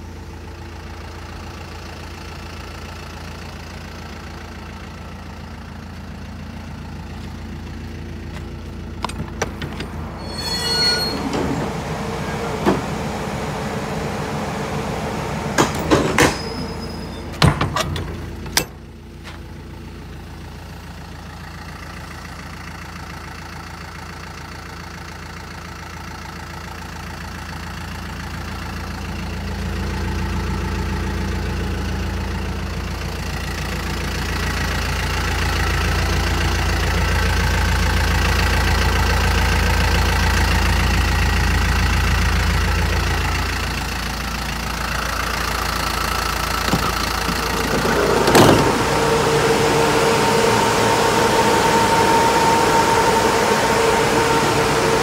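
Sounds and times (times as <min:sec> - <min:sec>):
truck engine idling: 0:00.0 - 0:55.0
metal doors clicking and clanking: 0:09.0 - 0:11.8, 0:15.6 - 0:19.4, 0:46.5 - 0:49.0
metal doors knocking and slamming: 0:17.2 - 0:18.8, 0:46.6 - 0:48.9.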